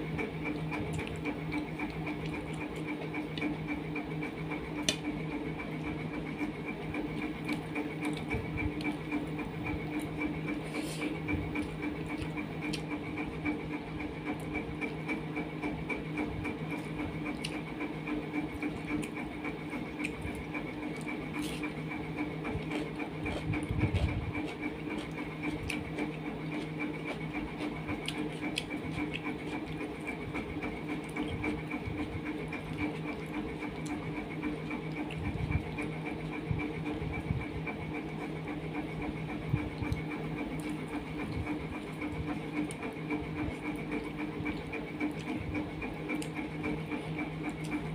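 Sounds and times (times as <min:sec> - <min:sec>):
motor humming: 0:00.0 - 0:47.9
fingers mixing food on plate: 0:00.1 - 0:12.9, 0:18.3 - 0:37.0
chewing: 0:00.2 - 0:03.8, 0:04.8 - 0:13.5, 0:16.5 - 0:37.1, 0:39.2 - 0:47.9.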